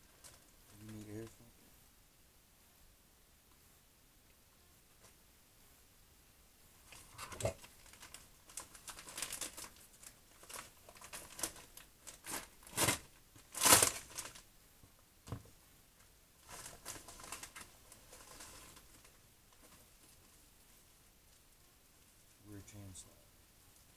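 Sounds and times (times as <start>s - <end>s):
paper packaging crinkling: 6.9s - 14.5s, 16.4s - 20.2s.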